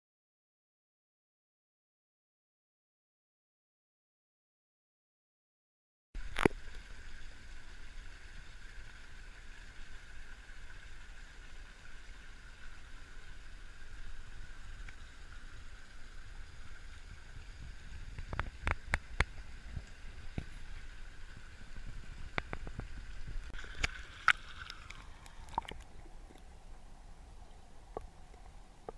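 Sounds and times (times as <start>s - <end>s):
waterfall splashing into a pool: 6.2s - 25.8s.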